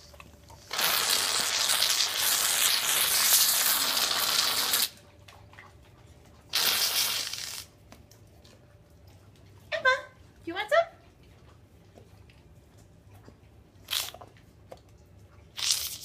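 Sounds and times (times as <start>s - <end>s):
whipped cream can spraying: 15.6s - 16.0s.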